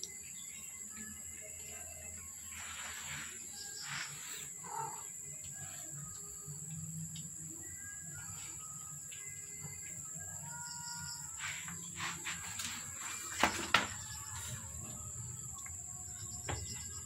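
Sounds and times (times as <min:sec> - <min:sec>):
faint bird chirps: 0:00.0 - 0:17.0
high-pitched insect trill: 0:00.0 - 0:17.0.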